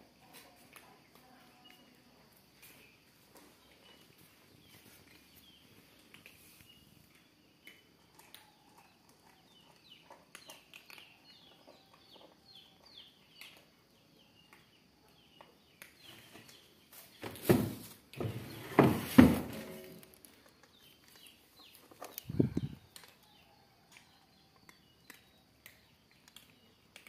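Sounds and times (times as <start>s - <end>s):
loud knocks or clatters: 17.5s - 19.9s
animals crunching dry kibble: 19.9s - 27.0s.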